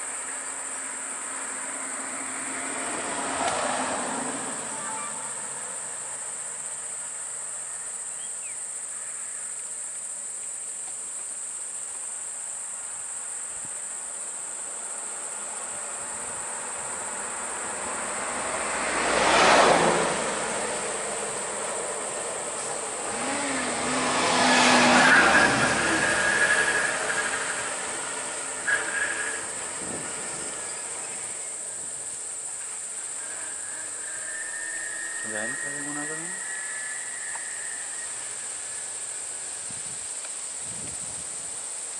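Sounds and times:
insects droning: 0.0s - 41.9s
vehicles driving past: 0.1s - 7.9s, 15.0s - 40.5s.

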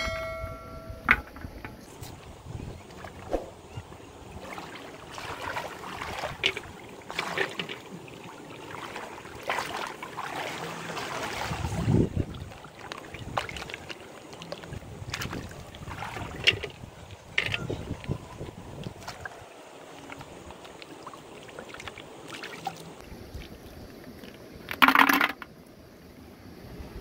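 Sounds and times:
hands splashing in water: 8.6s - 16.6s.

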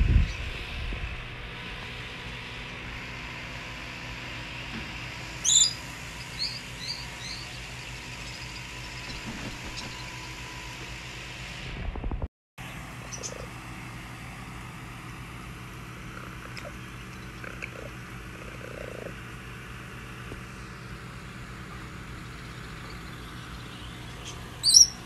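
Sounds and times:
steady background hum: 0.0s - 25.0s
high animal squeak: 5.4s - 7.4s, 24.2s - 25.0s.

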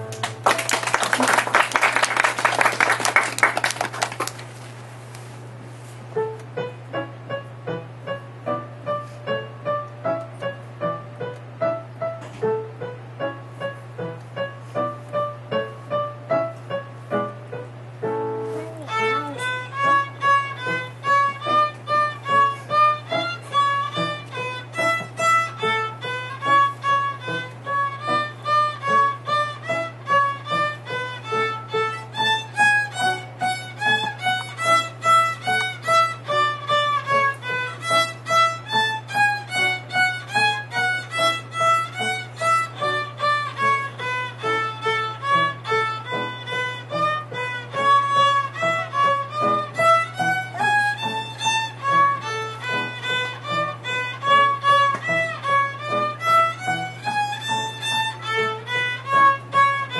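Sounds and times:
violin bowed notes: 18.2s - 59.9s.

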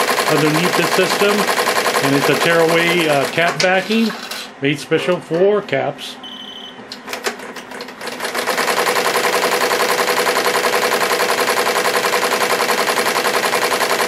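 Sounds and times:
embroidery machine stitching: 0.0s - 4.1s, 7.3s - 14.0s
short high beep: 6.2s - 6.8s.

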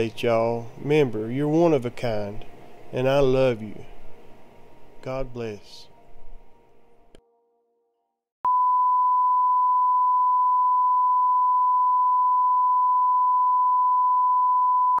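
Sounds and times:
pure test tone: 8.5s - 15.0s.

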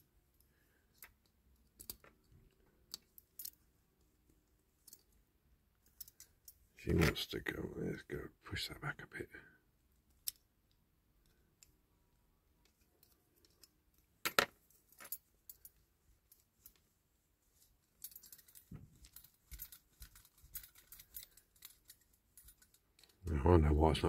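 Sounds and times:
small metal parts clinking: 0.4s - 3.7s, 4.8s - 7.1s, 10.1s - 11.8s, 12.6s - 16.8s, 17.6s - 23.3s.

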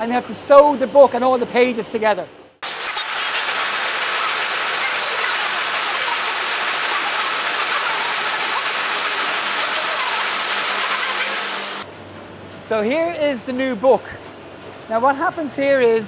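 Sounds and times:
printing machinery hissing: 2.6s - 11.9s.

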